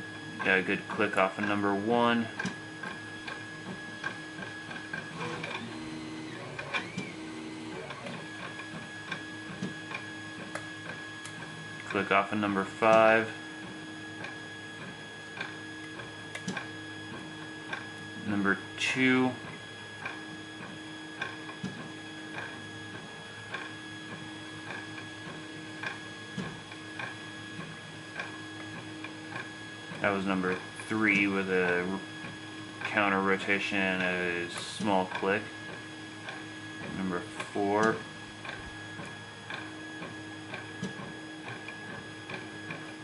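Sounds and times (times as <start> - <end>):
steady electrical hum: 17.6 - 20.4, 22.0 - 43.0.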